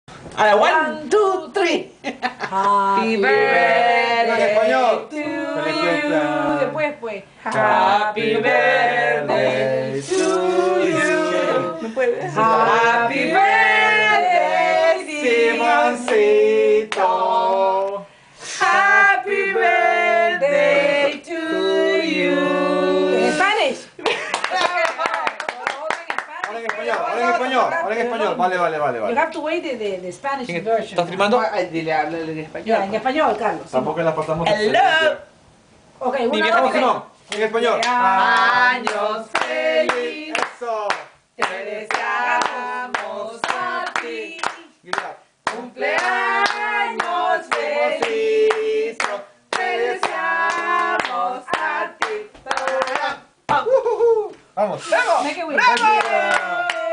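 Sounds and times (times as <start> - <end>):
group singing without instruments: 2.5 - 23.7, 37.6 - 44.8, 45.4 - 53.1
hands clapping along: 24.0 - 27.1, 37.3 - 53.6, 55.7 - 56.9.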